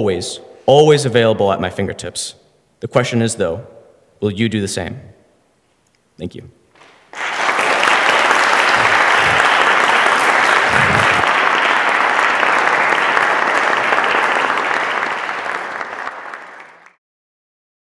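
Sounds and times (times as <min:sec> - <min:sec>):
audience applauding: 0:06.8 - 0:17.0.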